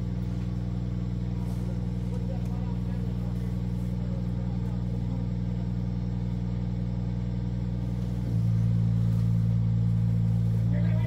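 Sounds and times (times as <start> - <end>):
crane engine revving: 0.0 - 11.0.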